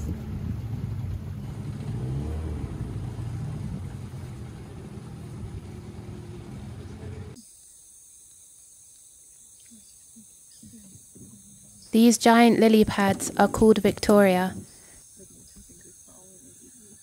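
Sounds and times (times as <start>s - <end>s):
outboard motor running: 0.0s - 7.4s
faint outdoor ambience: 0.0s - 17.0s.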